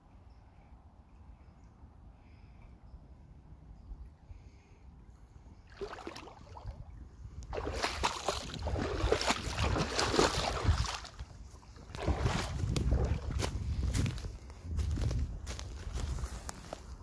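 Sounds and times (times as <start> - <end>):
footsteps in forest: 7.6 - 17.0.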